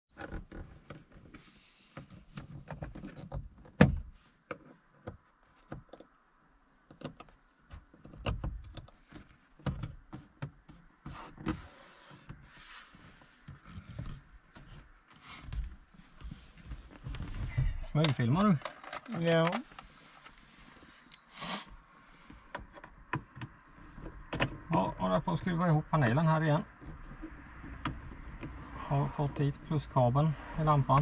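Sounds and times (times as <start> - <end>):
hands working on trim panels: 26.7 - 28.8.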